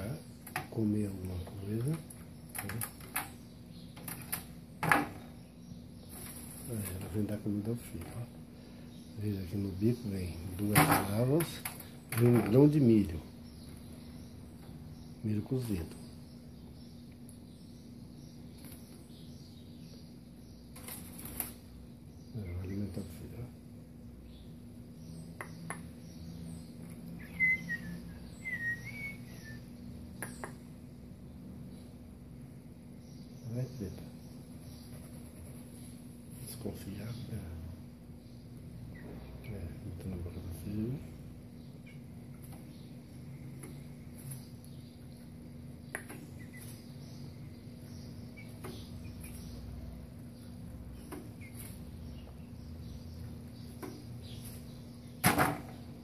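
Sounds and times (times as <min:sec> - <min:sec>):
bird chirps: 0:00.0 - 0:56.0
steady low hum: 0:00.0 - 0:56.0
birds landing on cage perches: 0:10.6 - 0:12.7, 0:55.2 - 0:55.8.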